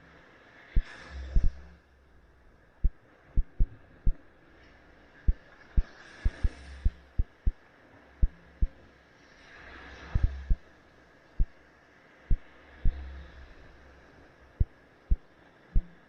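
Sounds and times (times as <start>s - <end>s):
sharp low thumps: 2.8s - 4.2s, 6.3s - 7.6s, 10.2s - 10.6s.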